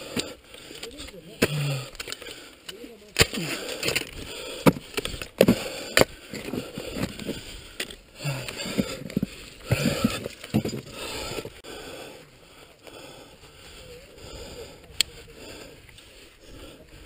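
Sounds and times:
climbing gear scraping ice and rock: 0.0s - 11.6s
person breathing hard: 0.0s - 17.0s.

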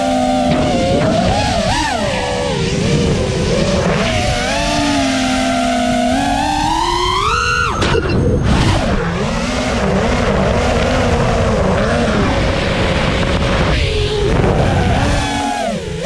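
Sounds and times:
air rushing over drone: 0.0s - 16.0s
drone motor whine: 0.0s - 16.0s.

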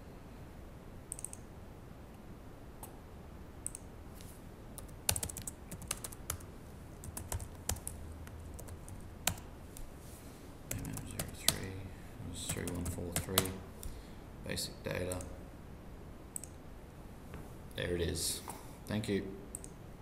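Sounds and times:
computer keyboard typing: 1.1s - 1.4s, 4.8s - 9.5s, 10.7s - 11.7s, 12.4s - 13.6s.

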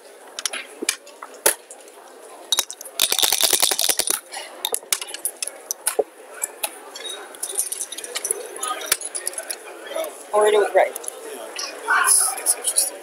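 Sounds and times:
dice rattling in cup: 2.5s - 5.4s
dice rolling onto board: 2.6s - 5.2s
checkers clicking on board: 2.6s - 6.0s.

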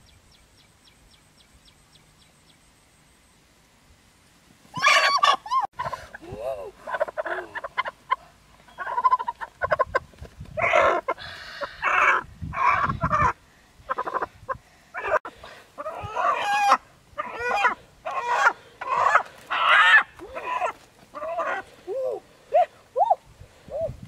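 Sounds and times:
hen clucking and squawking: 4.8s - 23.2s.

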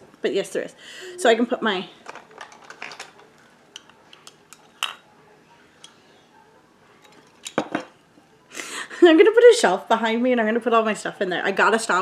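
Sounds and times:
pencils clicking against plastic: 2.0s - 4.6s.

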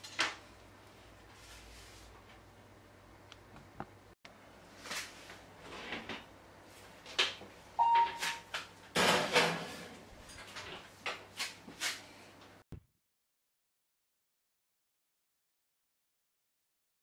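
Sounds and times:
short electronic beep: 7.8s - 8.4s.

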